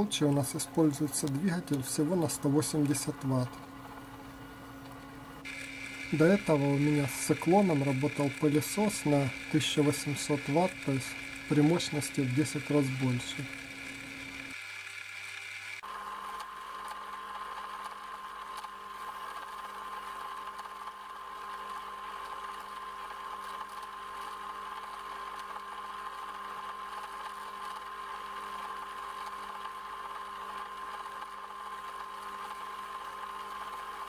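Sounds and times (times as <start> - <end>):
dust collector blower running: 0.0 - 3.8, 5.4 - 16.1.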